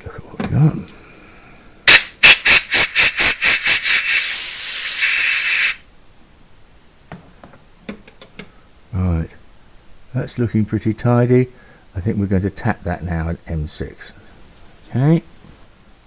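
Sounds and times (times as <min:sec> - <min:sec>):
compressed air blow gun blasts: 0:01.9 - 0:05.8.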